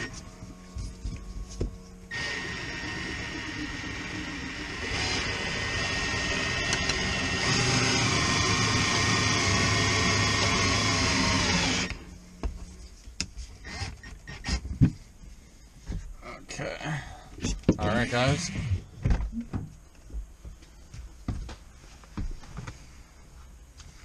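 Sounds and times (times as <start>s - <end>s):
cordless drill motor whine: 0.0s - 0.3s, 2.0s - 12.2s, 17.9s - 18.9s.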